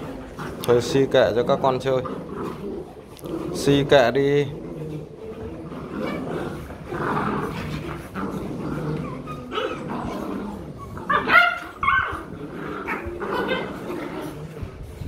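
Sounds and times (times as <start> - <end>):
puppies growling: 0.0 - 15.0
puppies yipping and barking: 4.8 - 15.0.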